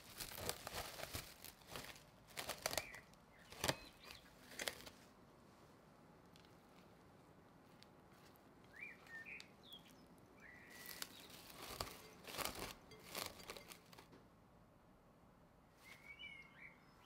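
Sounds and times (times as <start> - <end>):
cling film crinkling: 0.0 - 5.0, 10.7 - 14.1
faint bird chirps: 2.7 - 4.5, 8.7 - 13.7, 15.7 - 17.0.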